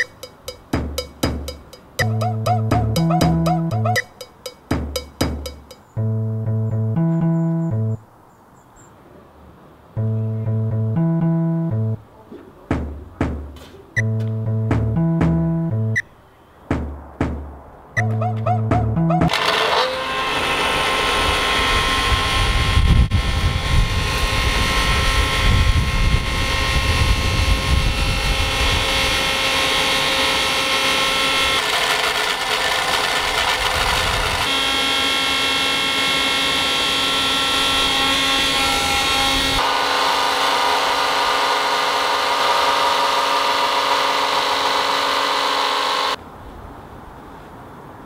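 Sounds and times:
blender motor whining: 19.3 - 46.2.

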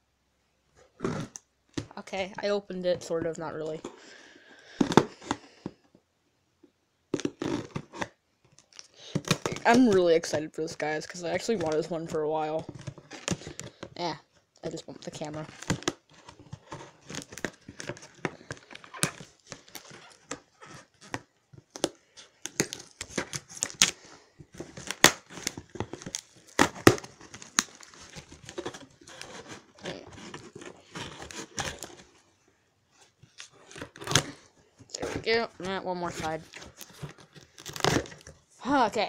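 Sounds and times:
tape tearing and crinkling: 1.0 - 1.9, 7.1 - 10.3, 11.3 - 13.9, 14.6 - 38.4
scissors cutting packing tape: 7.2 - 8.1, 15.5 - 24.0, 24.6 - 32.1, 33.4 - 35.2, 36.2 - 38.3.

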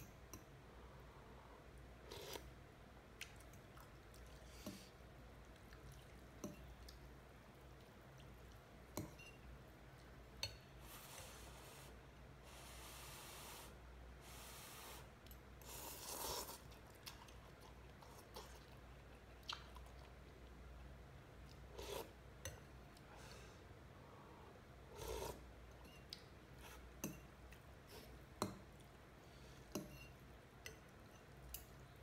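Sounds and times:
slurping noodles: 15.6 - 16.7.

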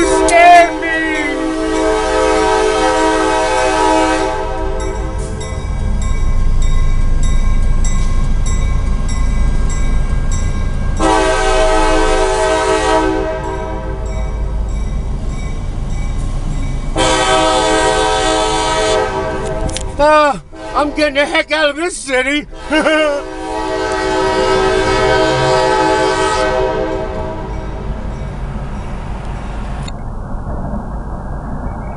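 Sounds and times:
locomotive air horn blasts: 0.0 - 5.4, 11.0 - 14.1, 17.0 - 19.9, 20.5 - 21.4, 22.5 - 27.6
crossing bells dinging: 0.0 - 18.5, 19.1 - 29.7
locomotive engine and wheels rumbling: 0.0 - 31.9.

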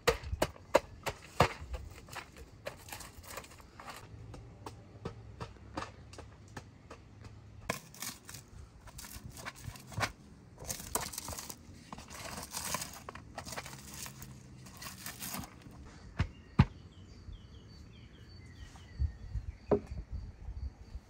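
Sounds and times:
stone crushing walnuts: 0.0 - 16.4.

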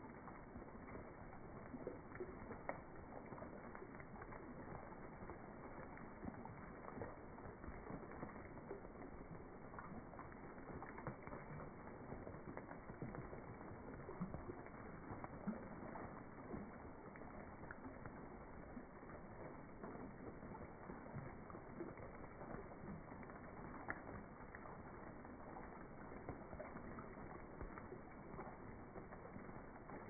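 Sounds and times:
rain falling on pond: 0.0 - 30.0.

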